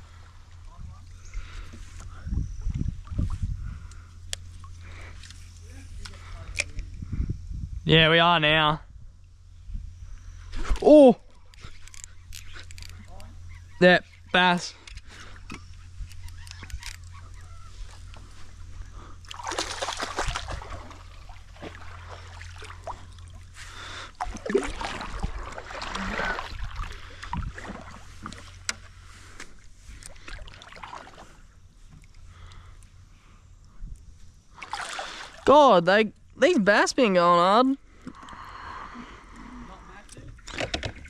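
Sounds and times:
steady low hum: 0.0s - 41.0s
water sloshing around a boat: 11.2s - 35.7s.

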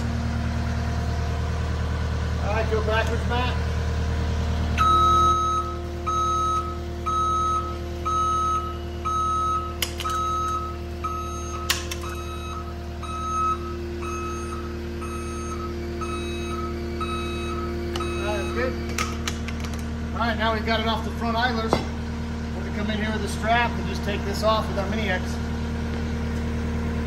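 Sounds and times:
diesel engine idling: 0.0s - 27.0s
backup alarm beeping: 4.8s - 18.8s.

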